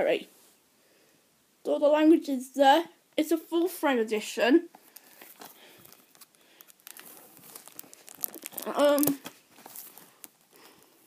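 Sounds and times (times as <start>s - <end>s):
plastic case clicking and crinkling: 4.8s - 10.9s.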